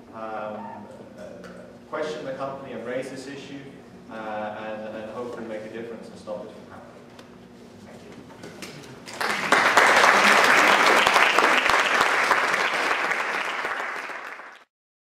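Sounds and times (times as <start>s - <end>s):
audience clapping: 9.0s - 14.7s.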